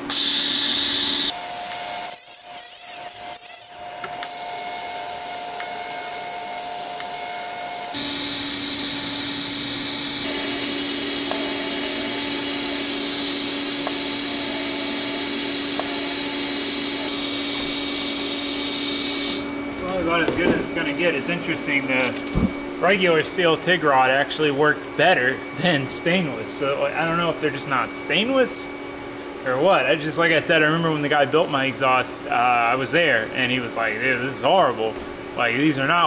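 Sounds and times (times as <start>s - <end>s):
welding arc buzzing hiss: 0.0s - 24.0s
constant hum: 1.2s - 36.0s.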